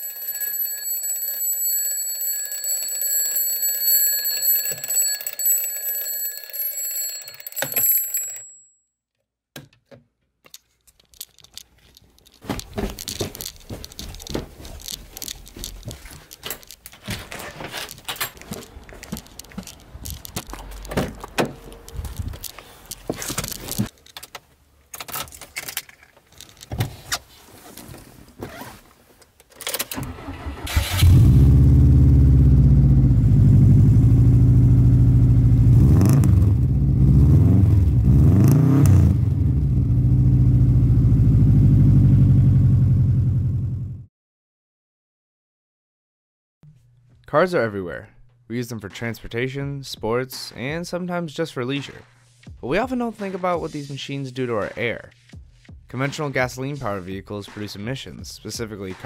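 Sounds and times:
electronic alarm ringing: 0.0 - 8.7
footsteps on carpeted stairs: 12.4 - 23.3.

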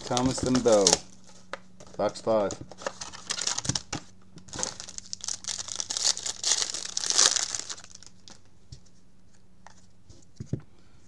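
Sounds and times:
plastic wrapper crinkling: 0.0 - 2.1, 2.7 - 8.5.

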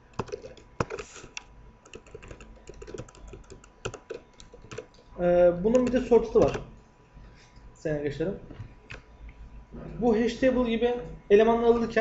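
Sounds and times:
keyboard typing: 0.0 - 5.1, 5.7 - 6.7.

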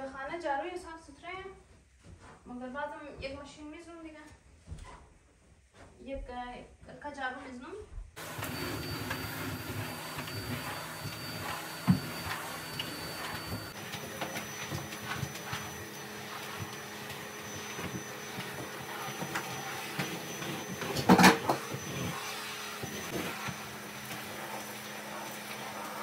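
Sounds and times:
vacuum cleaner humming: 8.2 - 26.0.

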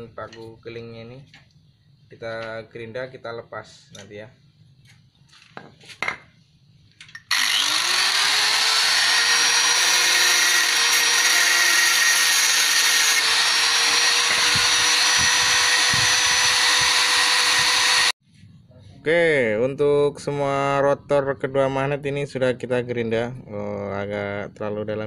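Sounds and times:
angle grinder whining: 7.3 - 18.2.

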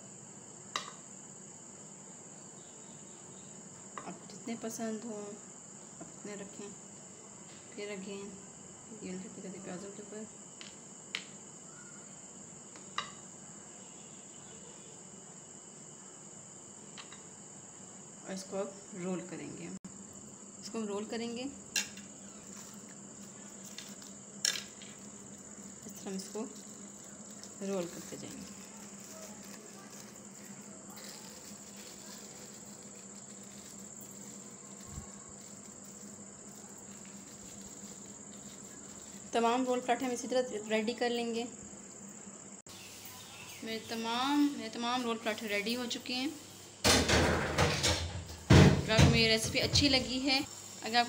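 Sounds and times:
crickets chirring: 0.0 - 51.0
plastic sheet rustling: 22.2 - 40.2.

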